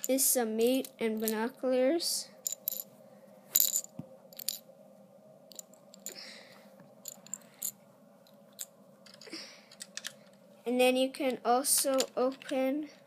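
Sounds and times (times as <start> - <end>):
plastic pieces clicking: 9.0 - 10.4.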